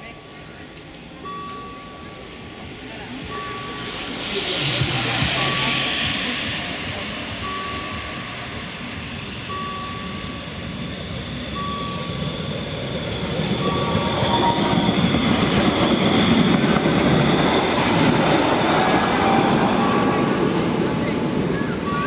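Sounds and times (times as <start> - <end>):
level crossing warning beeps: 0.0 - 22.0
tram running on rails: 0.0 - 22.0
high wheel squeal: 3.3 - 20.8.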